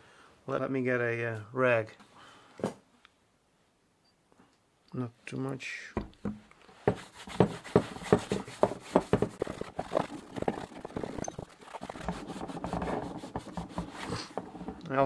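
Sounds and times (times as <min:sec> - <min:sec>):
cloth rag scrubbing leather: 0:06.8 - 0:15.0.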